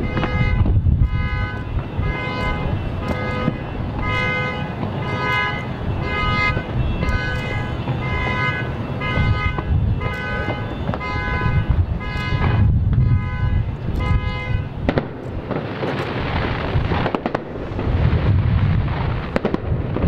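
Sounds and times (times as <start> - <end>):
vehicle horns honking: 0.0 - 15.0.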